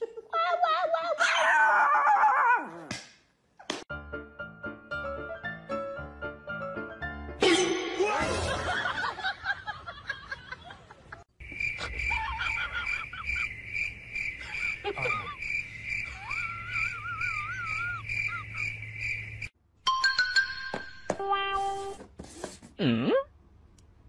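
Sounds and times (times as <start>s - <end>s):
crickets chirping: 11.3s - 19.5s.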